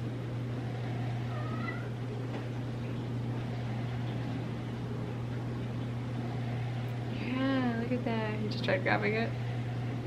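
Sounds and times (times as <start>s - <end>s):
steady low hum: 0.0s - 10.0s
cat meowing: 1.3s - 2.0s.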